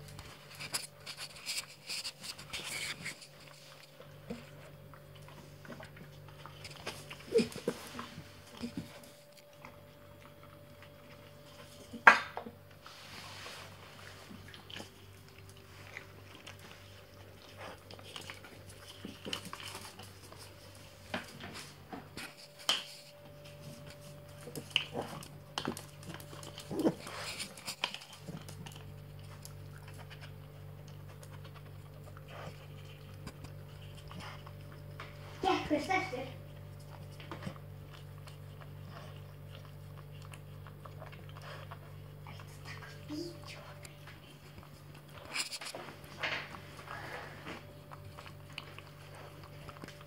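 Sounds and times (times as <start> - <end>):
steady low hum: 0.0 - 50.0
dog clicks on tiled floor: 8.4 - 12.6, 17.4 - 32.1.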